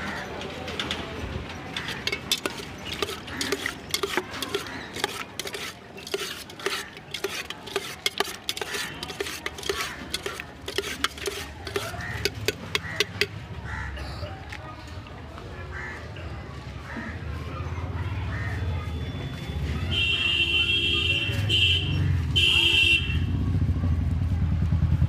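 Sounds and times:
metal spoon scraping steel container: 1.7s - 13.4s.

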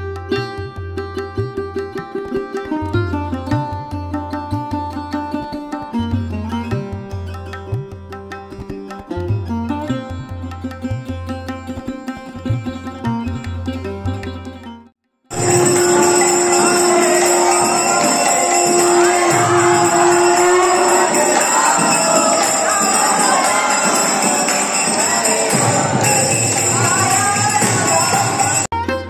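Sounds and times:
bells jingling: 15.3s - 28.7s
conch shell blasts: 15.3s - 28.7s
crowd voices: 15.3s - 28.7s.

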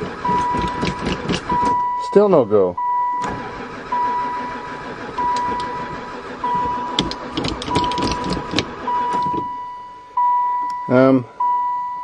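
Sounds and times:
starter motor cranking engine: 0.0s - 2.0s, 3.1s - 9.6s
dashboard warning chime: 0.2s - 12.0s.

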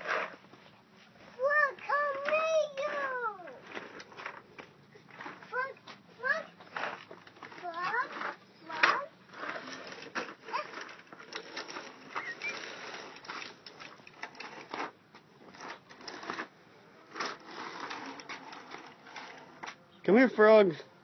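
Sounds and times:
plastic toy rattling on concrete: 5.1s - 16.5s, 17.1s - 19.8s.

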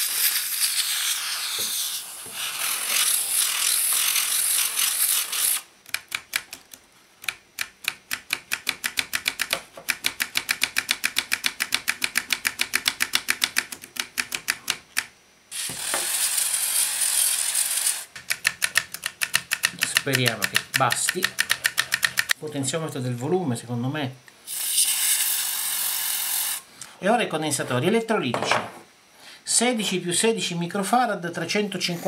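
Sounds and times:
aerosol spray hissing: 0.0s - 5.6s, 24.5s - 26.7s
control clicking back and forth: 5.8s - 15.1s, 18.1s - 22.4s.

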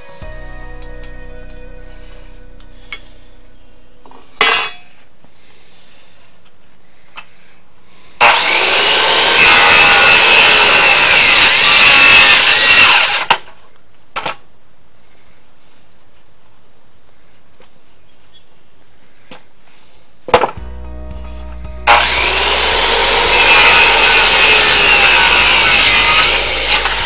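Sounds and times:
power saw cutting wood: 8.2s - 13.4s, 21.8s - 27.0s.

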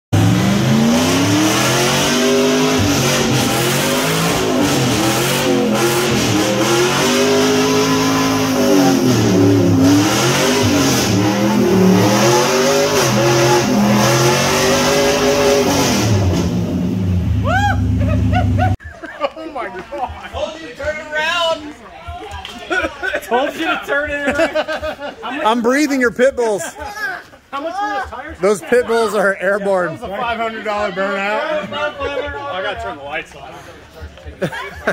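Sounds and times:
engine revving hard: 0.2s - 17.4s
tires spinning on concrete: 0.2s - 18.8s.

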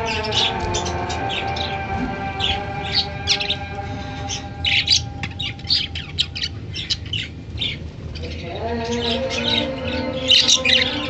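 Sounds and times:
budgerigars chirping: 0.0s - 11.0s.

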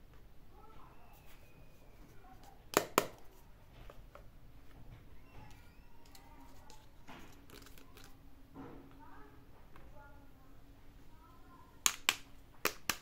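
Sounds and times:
plastic toy pieces clicking: 11.8s - 13.0s.

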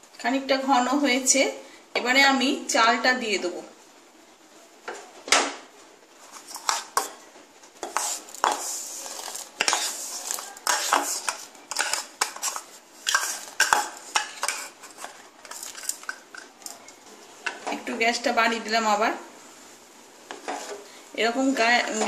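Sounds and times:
spoon scraping plastic bowl: 6.2s - 7.2s, 7.8s - 16.8s, 20.3s - 20.9s.

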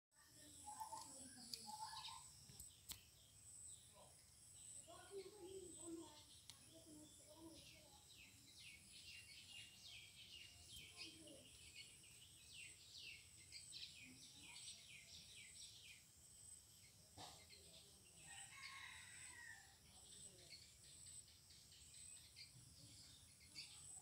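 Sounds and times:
small birds chirping: 0.2s - 24.0s
distant rooster crowing: 18.3s - 19.7s.

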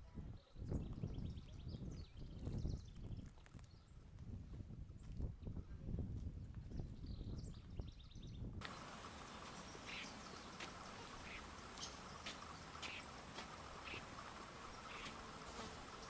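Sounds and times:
insects trilling: 8.6s - 16.0s.

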